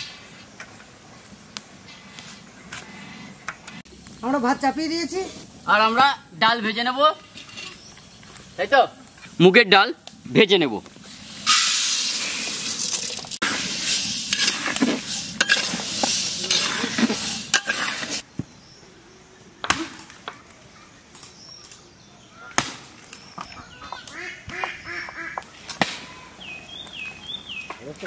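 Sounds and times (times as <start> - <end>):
grains pouring into metal pan: 11.4 - 18.1.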